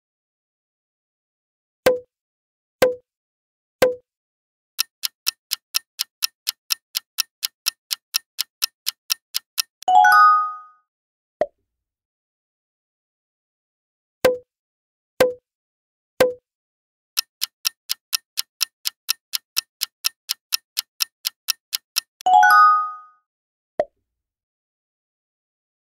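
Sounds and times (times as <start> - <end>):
clock-like countdown ticking: 4.8 - 9.9, 17.2 - 22.3.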